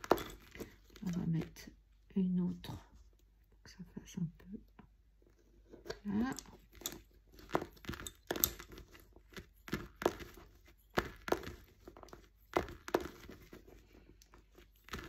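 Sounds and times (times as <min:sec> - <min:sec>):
lace bobbins clicking together: 0:05.9 - 0:15.0.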